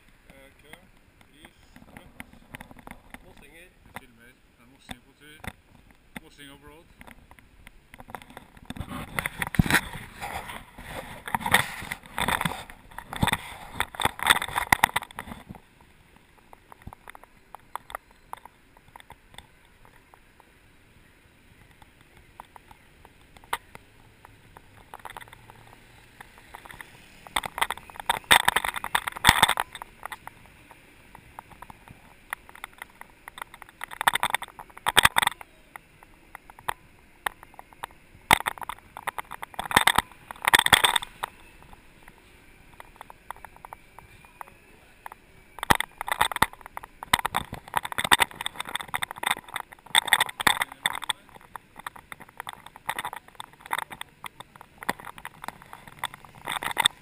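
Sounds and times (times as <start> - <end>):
scratchy rubbing on microphone: 8.2 - 15.6.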